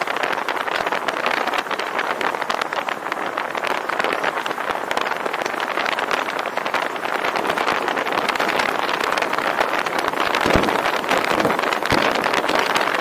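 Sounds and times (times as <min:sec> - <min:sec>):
wind buffeting microphone: 0:00.0 - 0:13.0
low thump: 0:10.4 - 0:12.6.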